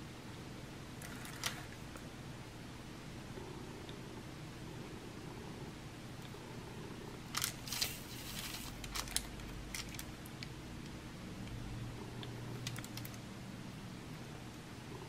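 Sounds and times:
plastic film rustling: 7.3 - 10.2.

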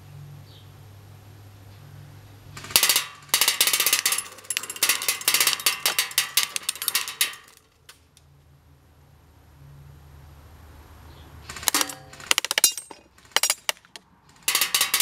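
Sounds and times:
pellets clattering on metal plates: 2.6 - 7.7, 11.6 - 15.0.

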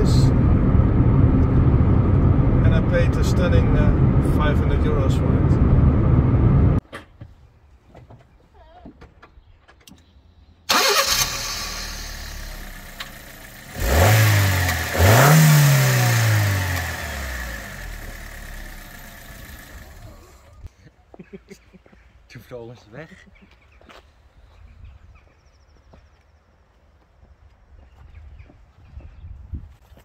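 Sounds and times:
car engine starting and revving: 0.0 - 6.8, 10.7 - 20.7.

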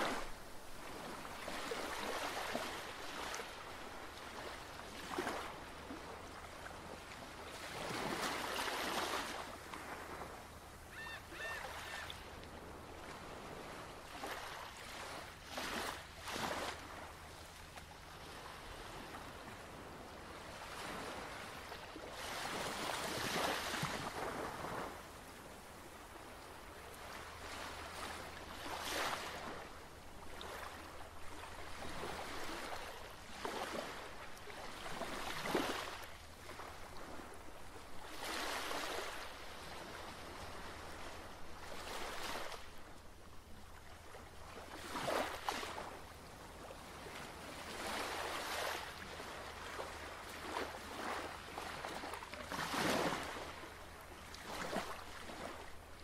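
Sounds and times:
ocean surf washing on shore: 0.0 - 17.2.

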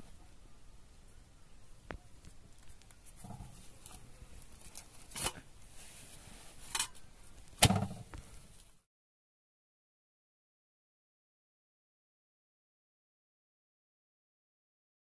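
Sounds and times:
dough rustling: 2.2 - 8.8.

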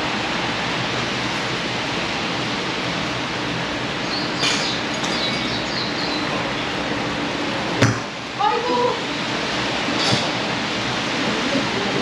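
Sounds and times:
steady rushing noise: 0.0 - 12.0
faint high chirping: 4.0 - 6.7.

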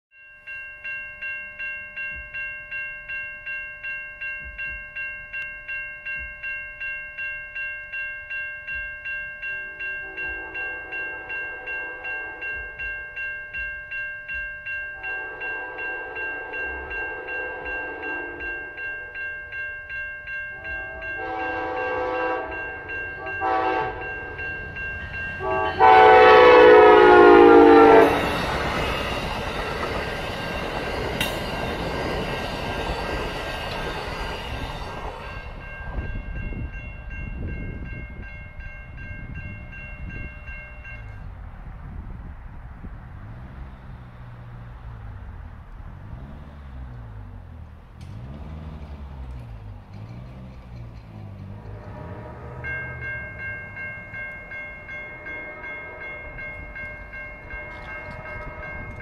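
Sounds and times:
crossing warning bell ringing: 0.1 - 59.0
train rumbling over crossing: 0.5 - 59.0
train horn blasts: 9.9 - 12.9, 15.0 - 18.8, 20.6 - 24.5, 25.2 - 29.0, 51.5 - 53.4, 54.9 - 59.0.

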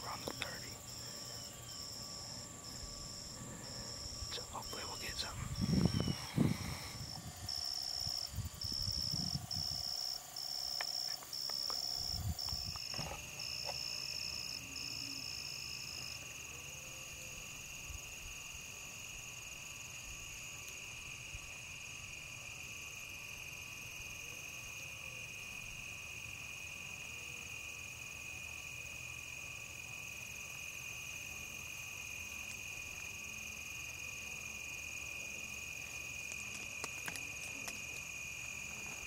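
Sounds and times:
high pulsed insect trill: 0.0 - 39.0
lower continuous insect trill: 0.0 - 39.0
low rumbling noise: 2.4 - 9.7.

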